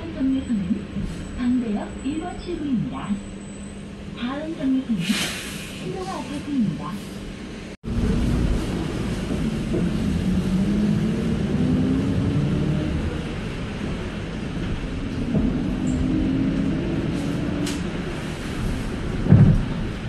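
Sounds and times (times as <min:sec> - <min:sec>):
bus engine running: 0:07.0 - 0:20.0
road noise: 0:07.2 - 0:20.0.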